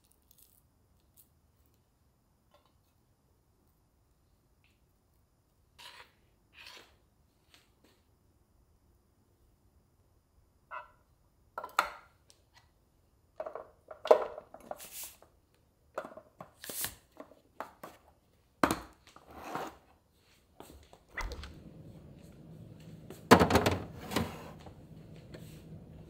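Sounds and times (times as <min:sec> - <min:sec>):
spatula scraping yogurt: 0:05.7 - 0:07.1
containers knocking down: 0:23.2 - 0:24.6.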